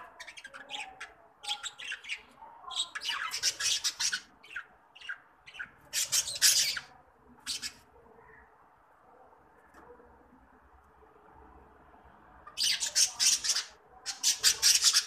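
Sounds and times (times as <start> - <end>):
budgerigars chattering and squawking: 0.1 - 7.8, 12.5 - 15.0.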